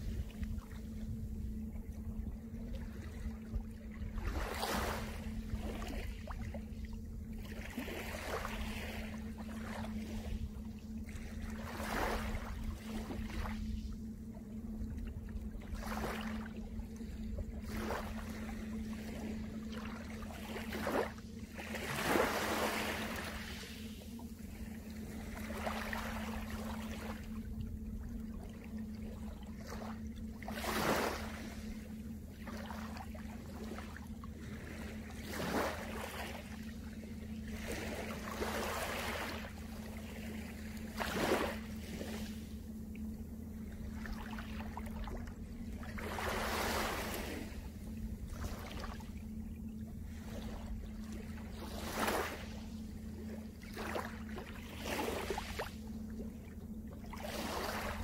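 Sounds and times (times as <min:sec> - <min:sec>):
steady surf: 0:15.7 - 0:55.8.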